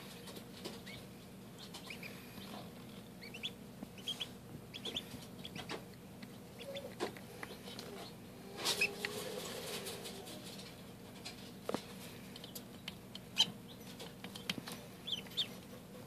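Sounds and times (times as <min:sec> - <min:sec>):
bills tapping on feeder: 0:00.0 - 0:16.0
ducklings peeping: 0:00.0 - 0:16.0.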